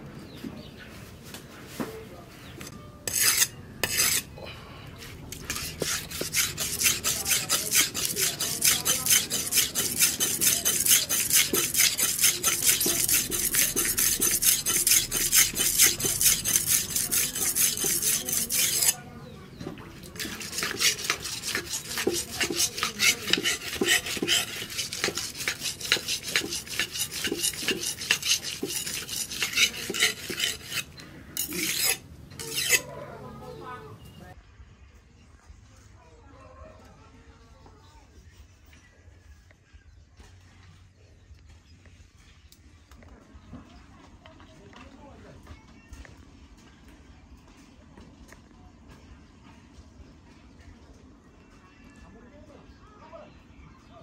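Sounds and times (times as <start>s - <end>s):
knife scraping on sharpening stone: 3.0s - 4.3s, 5.3s - 19.0s, 20.1s - 33.0s.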